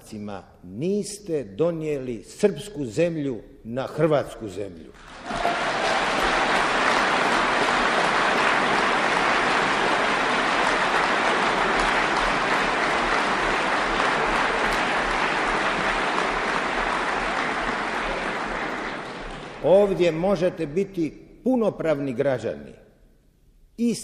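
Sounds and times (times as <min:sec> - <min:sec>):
audience applauding: 0:05.0 - 0:20.4.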